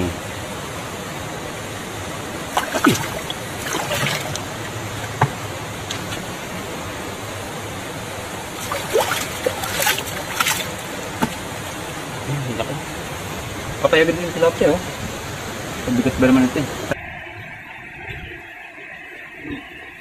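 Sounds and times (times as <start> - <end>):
running water: 0.0 - 17.0
water splashing in a bucket: 2.4 - 6.4, 8.5 - 11.6.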